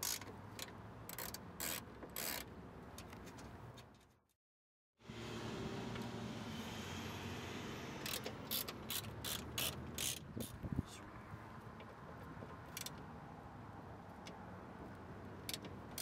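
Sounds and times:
hand ratchet clicking: 0.0 - 2.5, 8.0 - 10.6.

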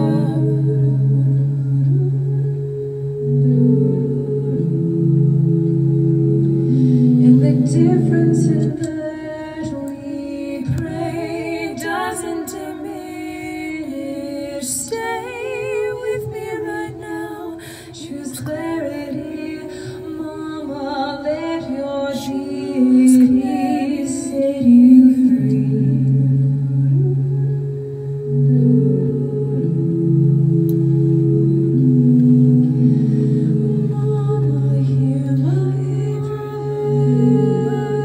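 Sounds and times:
woman singing with vibrato: 0.0 - 2.1, 3.2 - 27.3, 28.2 - 38.0
low drone: 0.0 - 38.0.

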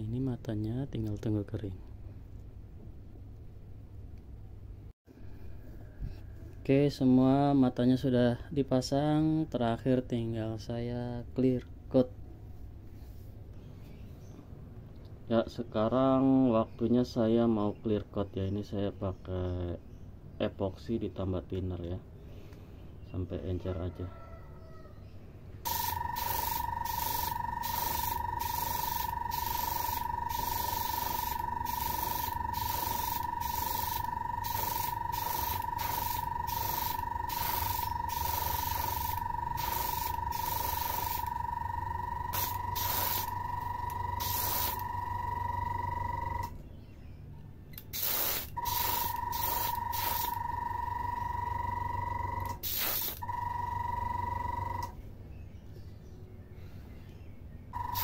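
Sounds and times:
hissing spray puffs: 25.7 - 41.3, 42.3 - 43.5, 44.2 - 44.9, 47.9 - 50.4, 52.6 - 53.2
sprayer motor whine: 25.7 - 46.5, 48.0 - 54.9, 57.8 - 58.0.

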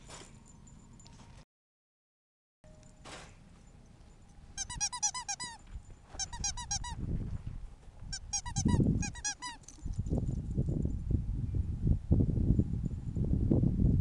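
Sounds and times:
squeaky toy squeaking: 4.6 - 7.0, 8.1 - 9.8.

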